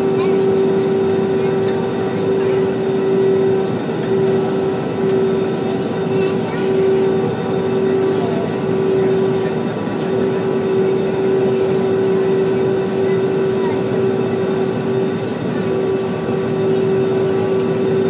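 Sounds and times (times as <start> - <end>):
airliner cabin engine rush: 0.0 - 18.0
constant hum: 0.0 - 18.0.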